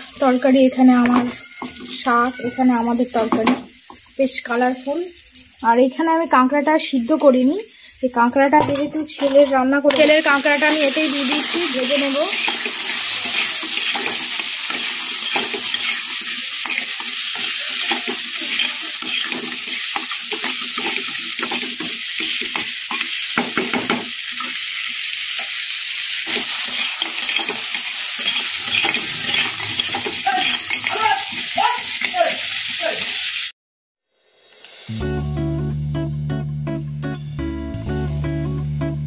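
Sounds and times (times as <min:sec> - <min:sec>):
food sizzling in oil: 0:00.0 - 0:33.6
metal spatula scraping wok: 0:08.8 - 0:23.2, 0:26.3 - 0:32.3.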